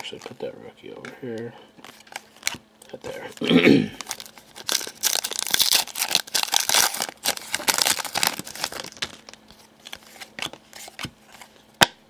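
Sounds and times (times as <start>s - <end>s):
plastic wrapper crinkling and tearing: 4.0s - 11.0s.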